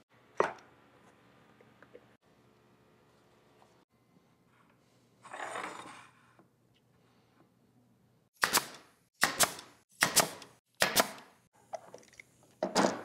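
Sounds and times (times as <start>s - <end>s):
nail gun firing: 8.4s - 11.3s.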